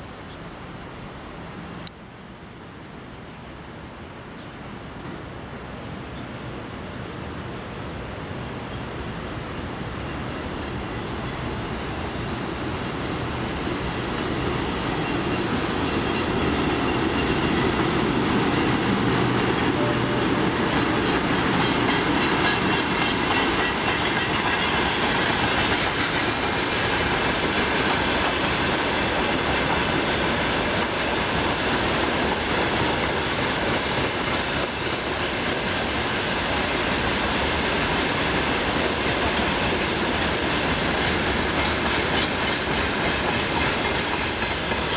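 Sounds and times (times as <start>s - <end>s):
freight train rolling past: 0.0s - 44.9s.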